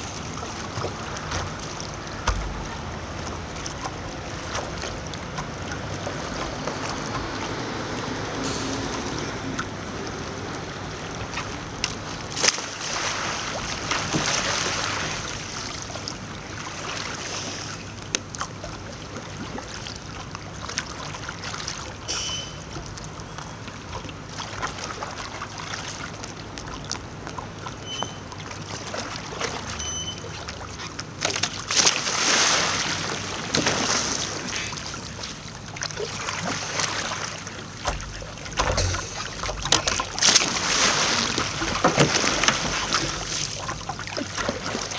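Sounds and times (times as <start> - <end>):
paddle splashing in water: 0.0 - 44.9
water sloshing around hull: 0.0 - 44.9
sharp knocks: 37.8 - 39.8.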